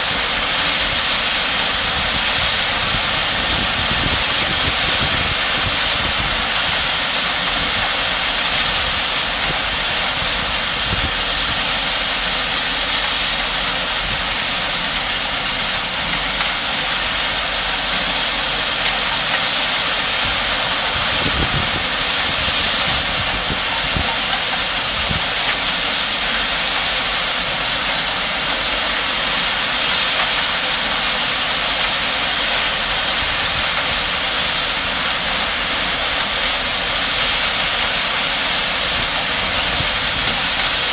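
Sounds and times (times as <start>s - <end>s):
dump truck engine running: 0.0s - 40.9s.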